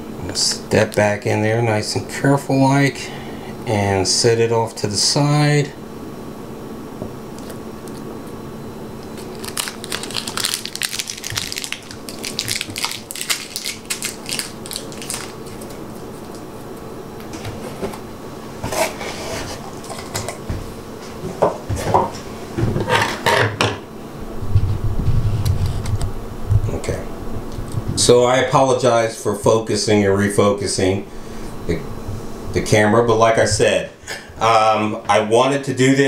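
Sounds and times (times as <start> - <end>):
steady low hum: 0.0 - 36.0
packaging crinkling: 9.0 - 16.8.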